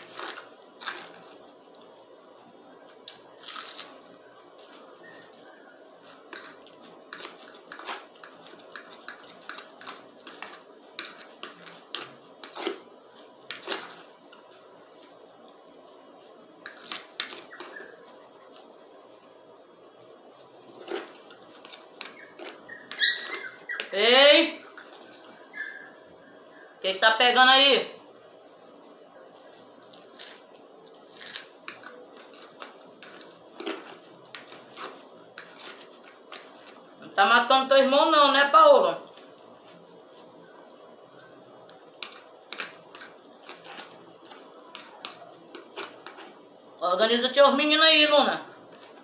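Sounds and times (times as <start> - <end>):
spaghetti slurping and chewing: 3.4 - 23.8, 29.3 - 37.0, 39.1 - 46.7
fork on plastic plate: 6.1 - 14.1
fork scraping plate: 20.6 - 23.9, 42.0 - 46.4.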